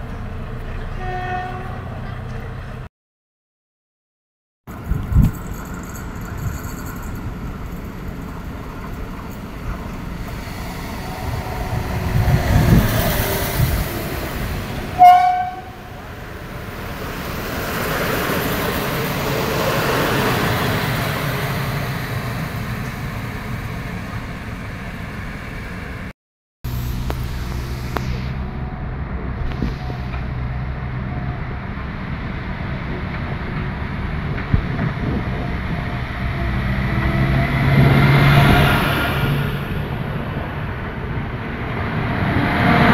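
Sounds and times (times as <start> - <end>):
diesel train rumbling past: 0.0 - 2.9, 4.7 - 26.1, 26.7 - 42.9
train horn toot: 0.9 - 1.9, 15.0 - 15.9.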